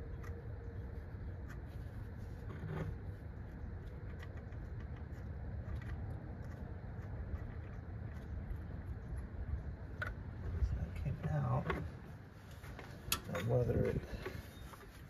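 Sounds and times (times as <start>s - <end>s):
low background rumble: 0.0s - 15.0s.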